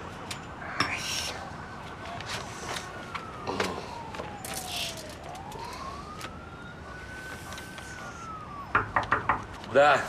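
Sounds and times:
distant siren wailing: 0.0 - 10.0
paper rustling: 1.8 - 6.4.

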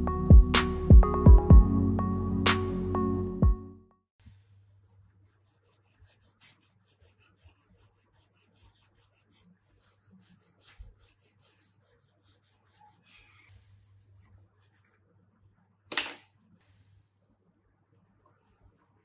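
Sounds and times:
wire brush scrubbing metal: 4.8 - 13.8.

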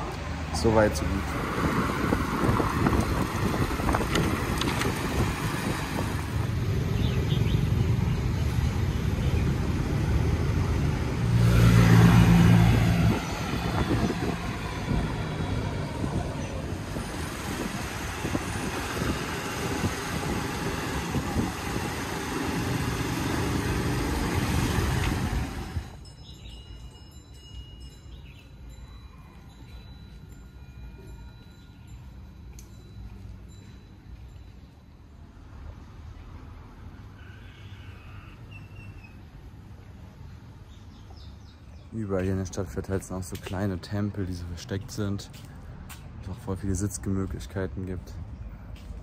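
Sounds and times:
city street traffic: 0.0 - 49.0
wind rushing over microphone: 0.6 - 26.0
motor engine humming close by: 0.8 - 26.0.

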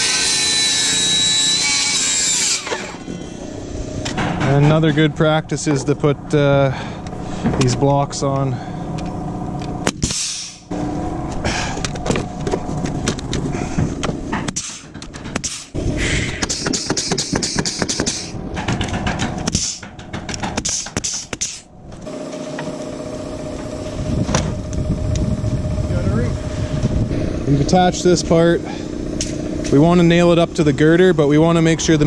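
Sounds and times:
steady hum: 0.0 - 32.0
nail gun firing: 14.5 - 15.7, 16.4 - 21.7.

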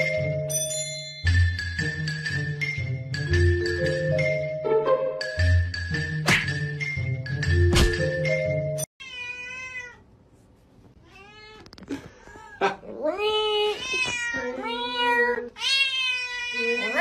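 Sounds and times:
tinkling background music: 0.0 - 8.9
cat meowing: 9.0 - 10.0, 11.0 - 11.7, 13.1 - 17.0.

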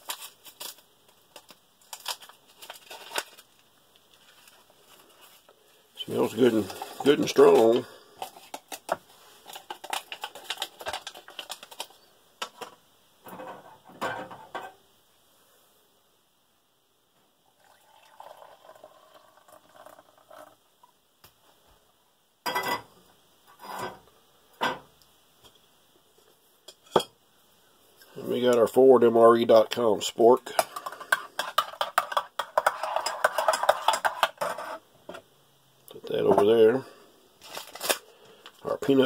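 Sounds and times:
water pouring into mug: 17.5 - 20.6
pot and mug clinking: 17.6 - 20.4.

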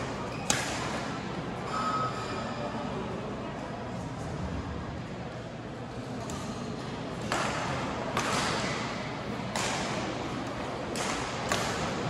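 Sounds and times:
sports hall background: 0.0 - 12.0
racket striking shuttlecock: 0.4 - 1.0, 7.2 - 8.9, 9.5 - 10.1, 10.9 - 12.0.

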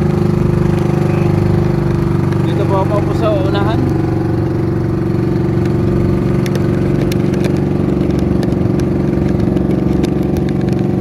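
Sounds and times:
boat engine droning: 0.0 - 11.0.

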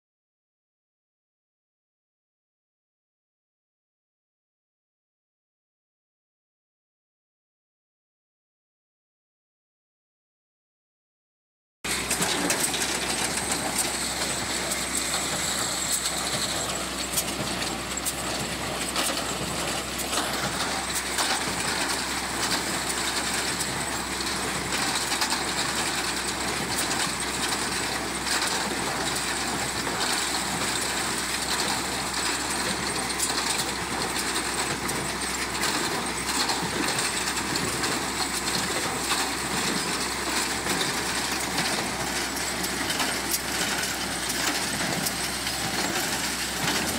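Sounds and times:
chain conveyor rattling: 11.9 - 46.9
tractor engine hum: 11.9 - 46.9.

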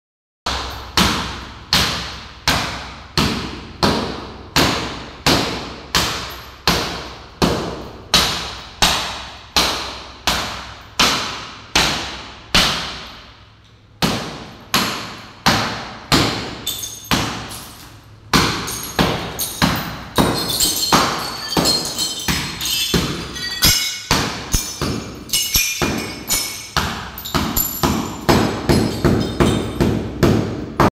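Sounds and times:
hammer striking mirror: 0.5 - 13.3, 14.0 - 30.9
glass shards clinking: 16.5 - 29.8.

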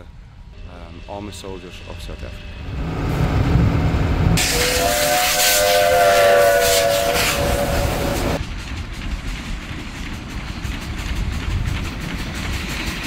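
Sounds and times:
train rumble: 0.0 - 13.0
loud steam hiss: 4.4 - 8.4
steam whistle chord: 4.4 - 8.4.

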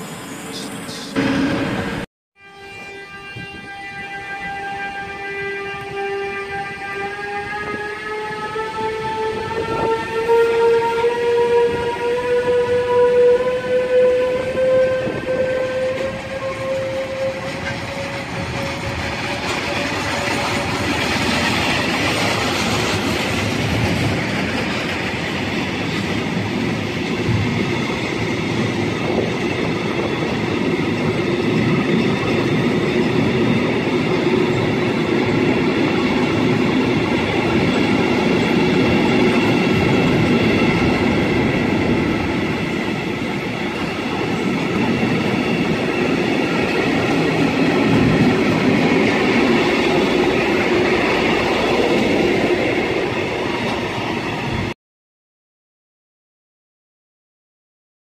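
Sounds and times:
freight wagon wheels rumbling on rails: 15.1 - 54.7.

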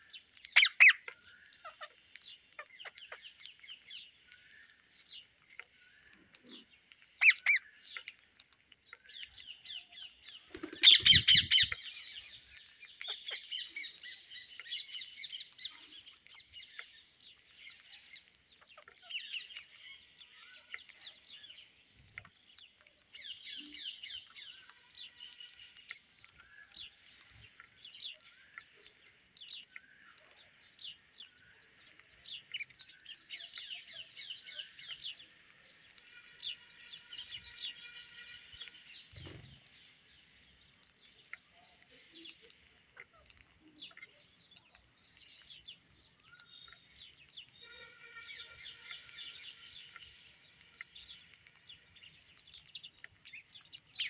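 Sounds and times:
birds chirping: 0.0 - 54.0.

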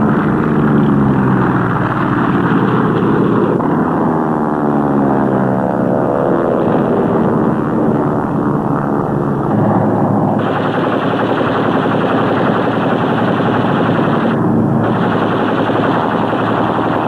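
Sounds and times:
aircraft engines droning: 0.0 - 17.0
rapid machine-gun fire: 2.0 - 3.6, 10.4 - 17.0.

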